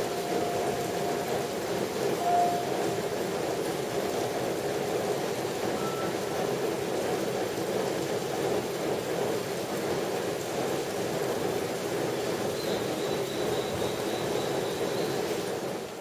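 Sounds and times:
steady rain: 0.0 - 16.0
short clear tone: 2.2 - 2.8, 5.8 - 6.2.

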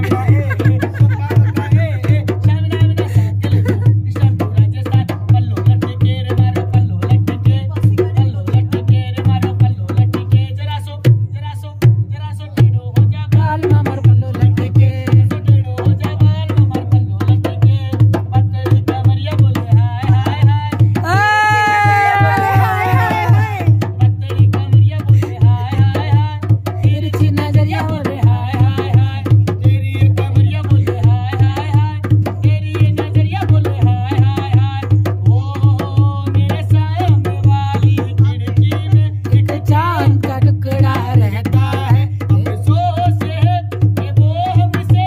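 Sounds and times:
person singing: 0.0 - 3.9, 21.0 - 23.7, 27.0 - 28.6, 39.3 - 42.6
hand drum beat: 0.0 - 45.0.

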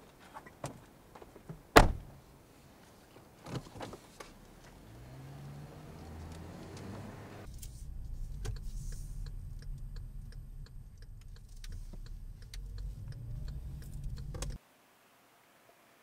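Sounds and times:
car road and engine rumble: 0.1 - 14.6
light ticking: 6.3 - 14.6.

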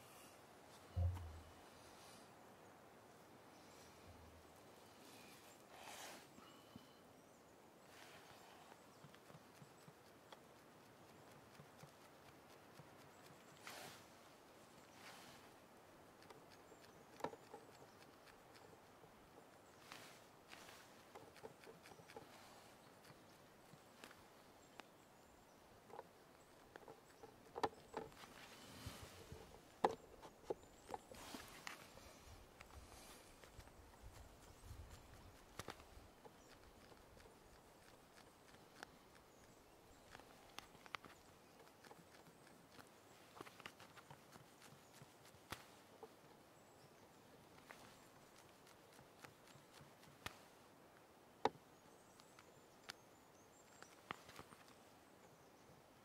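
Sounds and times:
brush scraping canvas: 13.5 - 14.1, 31.0 - 32.2.

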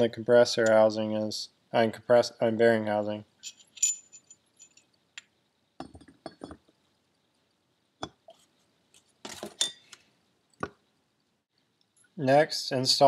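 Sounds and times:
metal parts clinking: 3.4 - 4.9.

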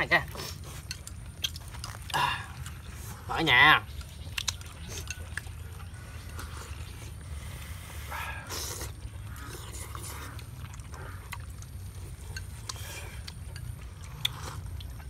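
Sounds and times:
chopsticks clicking against bowl: 3.9 - 5.5
person slurping porridge: 6.2 - 11.2.

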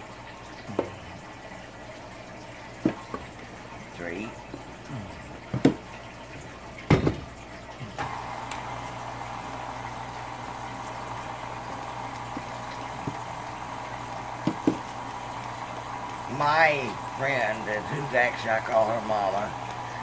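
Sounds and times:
stand mixer motor whine: 8.0 - 20.0
mixer head clunk: 14.4 - 14.9.

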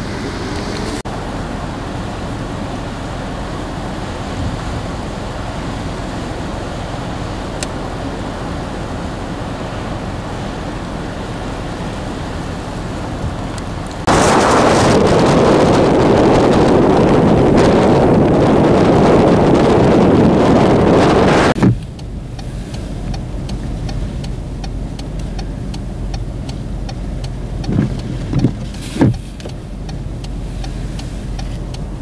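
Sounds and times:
blizzard wind blowing: 0.0 - 24.6
wind buffeting microphone: 3.4 - 32.0.

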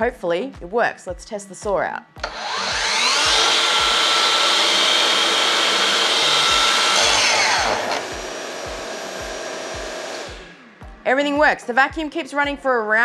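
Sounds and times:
dust extractor running: 2.2 - 10.6
mitre saw motor running: 2.2 - 10.6.

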